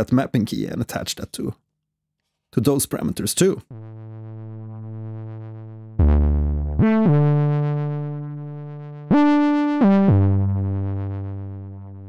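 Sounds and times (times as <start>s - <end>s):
synth bass with glide: 3.6s - 12.0s.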